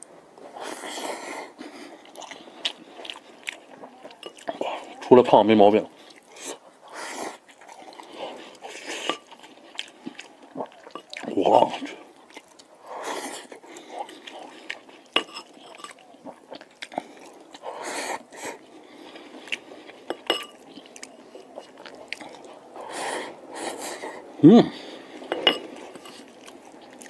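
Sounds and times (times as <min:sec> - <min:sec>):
open-mouthed chewing: 0:00.0 - 0:27.0
person humming mm: 0:24.4 - 0:24.8.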